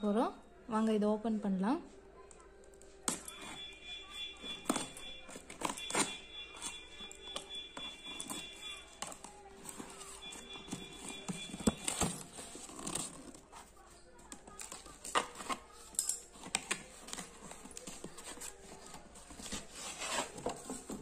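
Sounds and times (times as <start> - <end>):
cardboard taps scrapes and rustles: 16.6 - 21.0.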